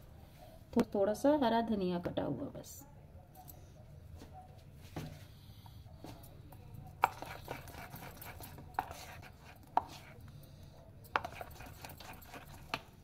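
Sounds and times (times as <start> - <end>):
soft wet stirring: 5.9 - 13.0.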